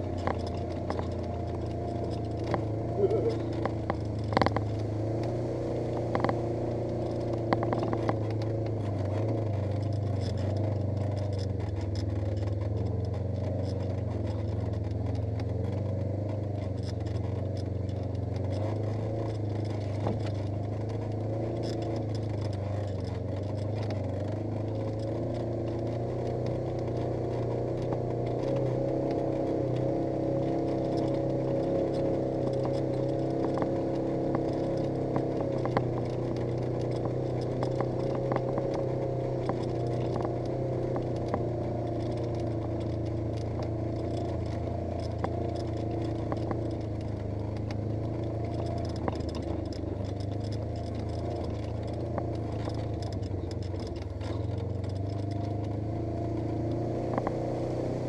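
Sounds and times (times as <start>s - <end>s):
clicks and rattles: 0.0s - 57.5s
engine running at low speed: 0.0s - 58.0s.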